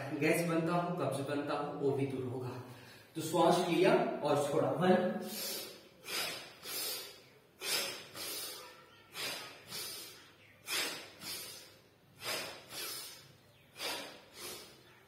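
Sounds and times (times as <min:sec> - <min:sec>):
man breathing forcefully: 0:05.2 - 0:14.9.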